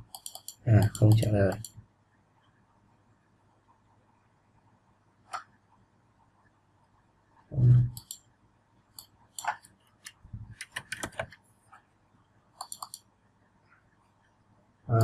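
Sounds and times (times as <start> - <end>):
mouse clicks: 0.1 - 1.8, 7.8 - 8.3, 12.6 - 13.1
low hum of a voice: 7.5 - 8.0
keyboard keys tapping: 9.4 - 11.4.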